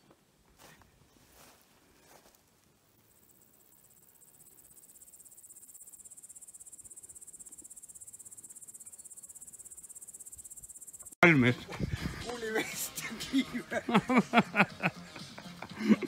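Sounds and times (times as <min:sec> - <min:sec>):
insect chirring trill: 0:03.0 - 0:11.2.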